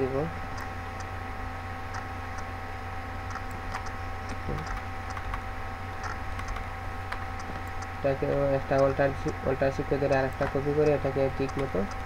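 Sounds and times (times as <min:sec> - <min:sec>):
steady electrical hum: 0:00.0 - 0:12.0
mouse and keyboard clicks: 0:03.3 - 0:05.4, 0:06.0 - 0:07.8, 0:10.1 - 0:12.0.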